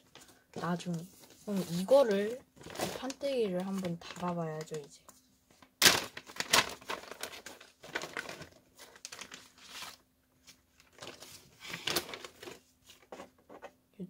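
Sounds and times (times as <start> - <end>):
plastic bag crinkling: 0.0 - 5.0, 5.6 - 13.1.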